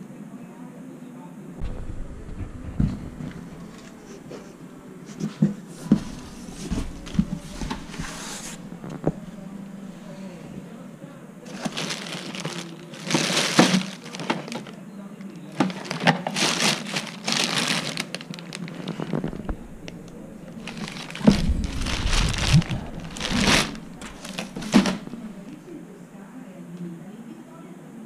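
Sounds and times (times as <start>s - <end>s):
low handling thumps: 1.6s - 5.0s, 19.2s - 25.7s
plastic wrap crinkling: 2.1s - 10.8s, 11.4s - 25.7s.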